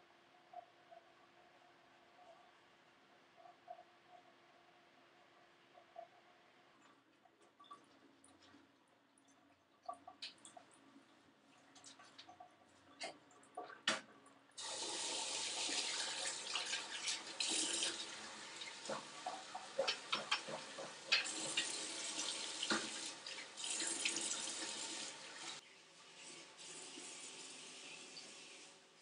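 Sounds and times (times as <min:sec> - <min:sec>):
shower water running: 0:14.6 - 0:29.0.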